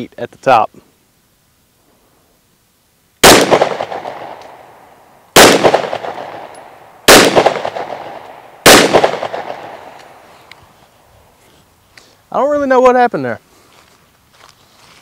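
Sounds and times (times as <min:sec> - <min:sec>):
pistol shots echoing: 0:03.2 - 0:04.8, 0:05.4 - 0:10.3.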